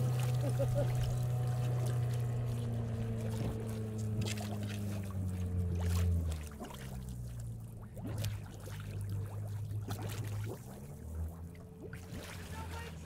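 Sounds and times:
small engine running: 0.0 - 6.4
water churning and sloshing: 0.0 - 13.0.

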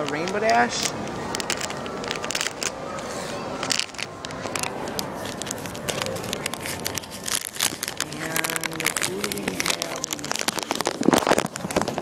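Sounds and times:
foil packet crinkling: 3.6 - 12.0.

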